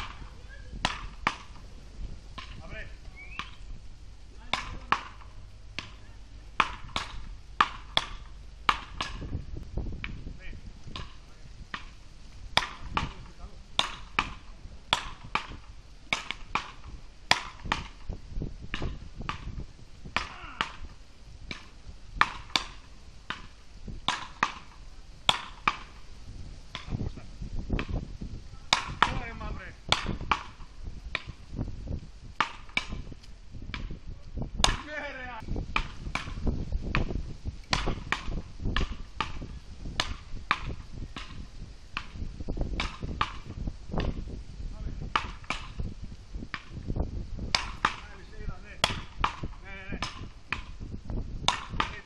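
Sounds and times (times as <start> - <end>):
wooden paddles hitting ball: 0.0 - 1.7, 2.4 - 2.6, 3.2 - 3.7, 4.4 - 9.4, 10.9 - 26.0, 26.7 - 27.1, 27.7 - 28.0, 28.7 - 31.4, 32.4 - 34.0, 34.6 - 35.0, 35.8 - 44.2, 45.0 - 45.9, 46.5 - 46.8, 47.5 - 50.8, 51.5 - 52.0.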